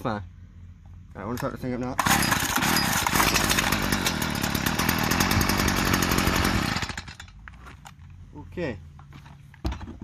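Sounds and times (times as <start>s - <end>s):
string trimmer engine running: 2.0s - 7.2s.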